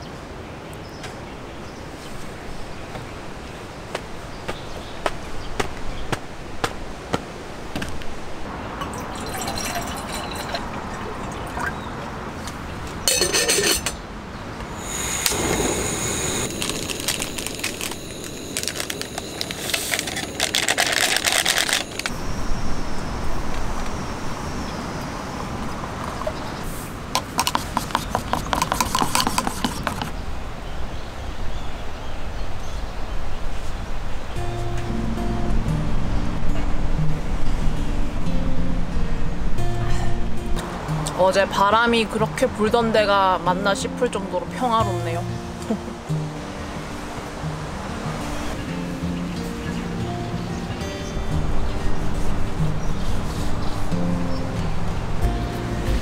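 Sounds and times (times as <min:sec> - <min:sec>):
liquid pouring: 0:08.8 - 0:12.0
light clinks against metal mug: 0:13.1 - 0:14.0
foil packet rustling: 0:16.5 - 0:22.1.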